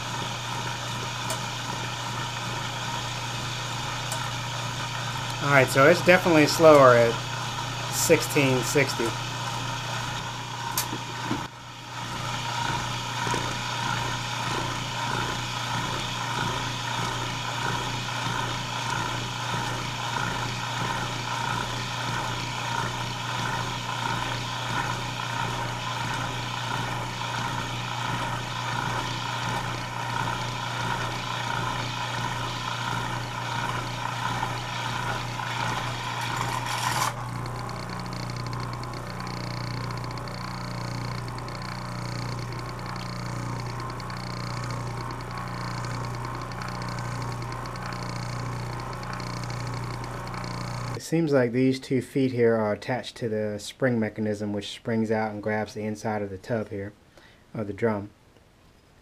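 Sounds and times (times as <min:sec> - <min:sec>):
electric motor humming: 0:00.0 - 0:51.0
motor whir: 0:00.0 - 0:51.0.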